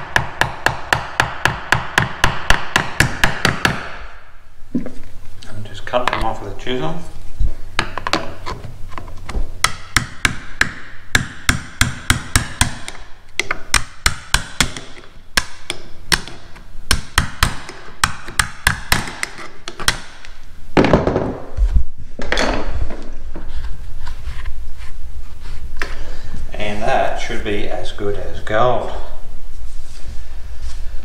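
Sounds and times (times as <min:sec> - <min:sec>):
chisel tapping and cracking wood: 0:07.8 - 0:20.4
chisel scraping: 0:17.4 - 0:20.0.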